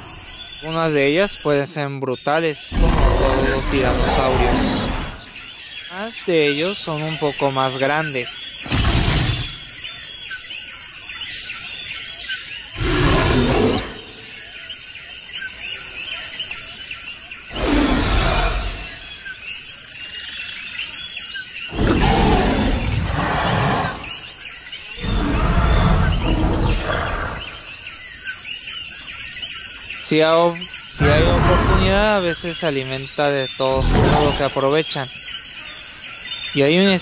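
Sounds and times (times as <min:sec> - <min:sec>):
birds chirping: 0:00.0 - 0:37.0
insects chirping: 0:00.0 - 0:37.0
dinosaur roars: 0:02.7 - 0:05.4, 0:12.8 - 0:14.4, 0:17.5 - 0:19.0, 0:21.7 - 0:24.3, 0:25.0 - 0:27.7, 0:31.0 - 0:32.2, 0:33.8 - 0:34.6.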